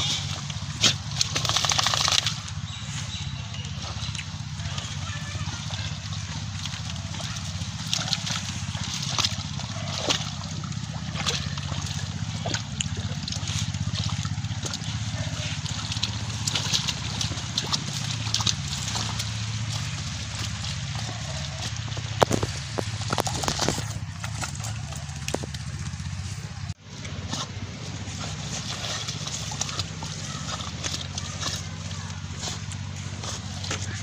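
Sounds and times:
low hum: 0:00.0 - 0:34.0
water sloshing: 0:00.0 - 0:34.0
plants clicking and snapping: 0:00.1 - 0:02.6, 0:06.6 - 0:26.2.

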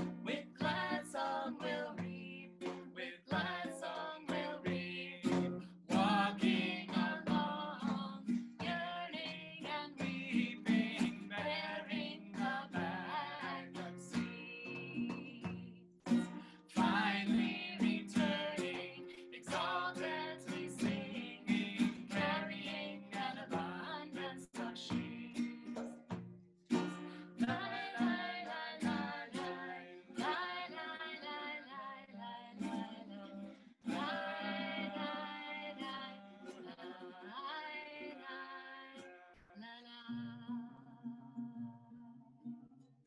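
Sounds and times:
woman singing: 0:00.0 - 0:15.8, 0:16.6 - 0:25.7, 0:27.2 - 0:42.2
guitar plucked or strummed: 0:00.0 - 0:31.6, 0:32.6 - 0:39.2.

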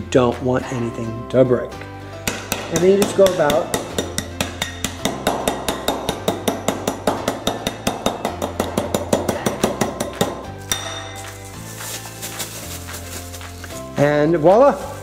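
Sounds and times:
cup pounding crackers in a bag: 0:08.1 - 0:15.0.

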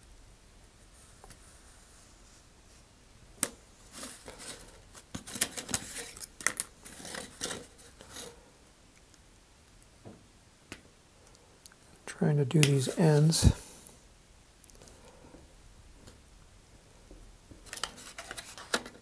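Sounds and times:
plastic part being handled: 0:03.4 - 0:08.3, 0:17.6 - 0:19.0.

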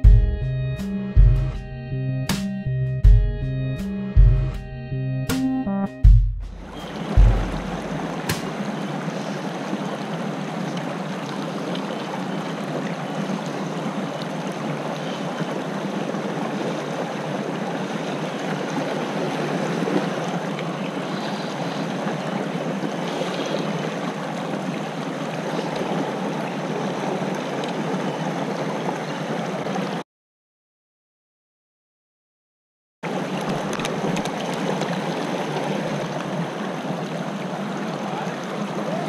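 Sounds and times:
water running over rocks: 0:06.8 - 0:30.0, 0:33.1 - 0:39.0.

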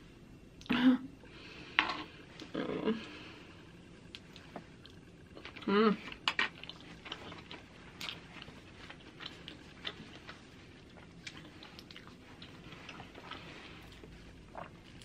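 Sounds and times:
person chewing food: 0:04.0 - 0:15.0.

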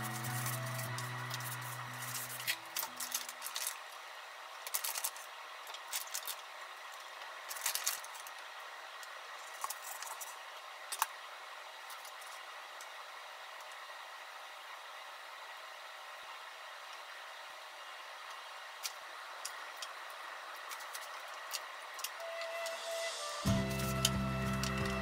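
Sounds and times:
plastic bag crinkling: 0:00.0 - 0:04.0, 0:04.6 - 0:08.4.

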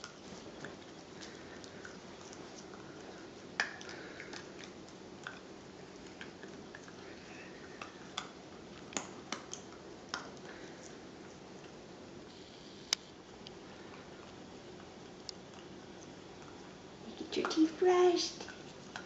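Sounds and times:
puppy chewing plastic toothbrush: 0:00.0 - 0:11.8, 0:13.8 - 0:19.0.

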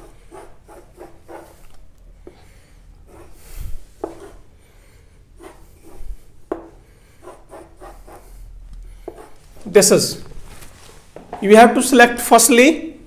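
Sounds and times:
faint rubbing and scraping: 0:05.4 - 0:11.4.

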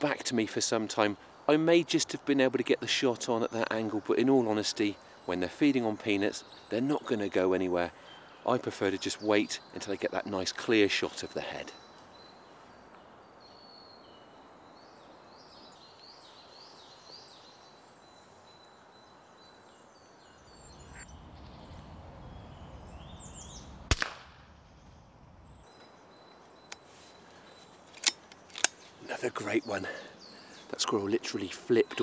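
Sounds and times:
small birds chirping: 0:00.0 - 0:32.0
air rifle shot: 0:23.9 - 0:24.6.

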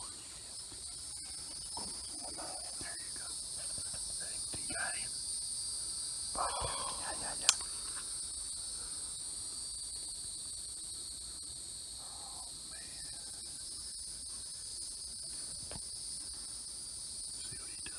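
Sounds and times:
insect chorus: 0:00.0 - 0:17.9
sharp click: 0:07.3 - 0:07.7.

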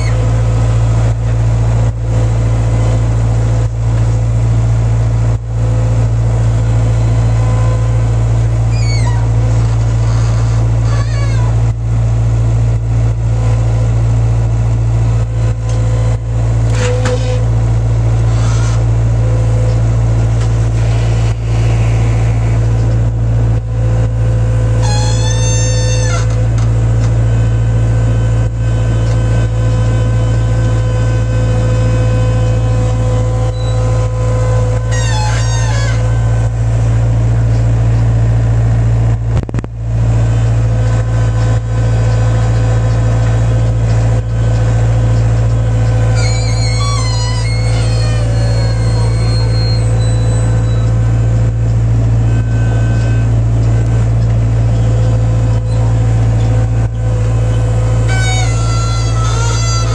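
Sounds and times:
loader engine humming: 0:00.0 - 0:59.9
high-pitched squeals: 0:08.7 - 0:11.6, 0:18.2 - 0:26.5, 0:32.5 - 0:36.5, 0:45.7 - 0:51.2, 0:57.5 - 0:59.9.

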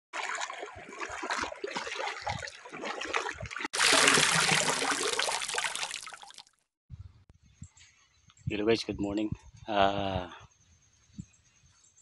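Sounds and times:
water trickling over road: 0:00.2 - 0:06.6.

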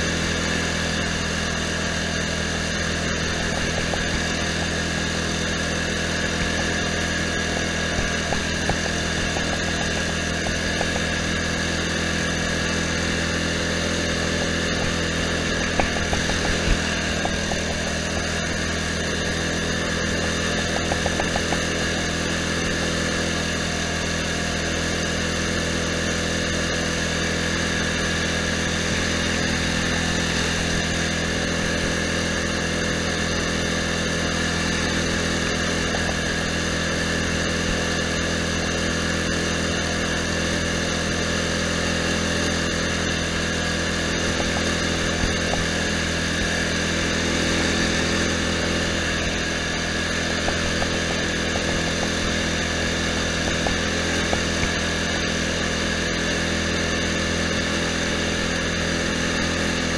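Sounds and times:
lawn tractor engine running: 0:00.0 - 0:59.9.

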